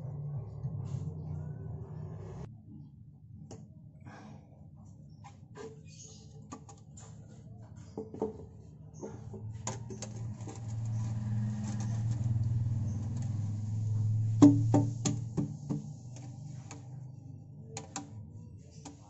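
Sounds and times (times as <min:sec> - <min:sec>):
plastic pipe knocks and clicks: 0:14.4 - 0:16.8.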